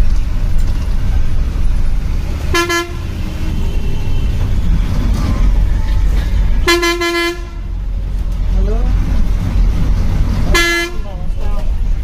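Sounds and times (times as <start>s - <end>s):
bus engine and road rumble: 0.0s - 12.0s
bus horn toot: 2.4s - 4.7s, 6.2s - 7.8s, 10.5s - 11.1s.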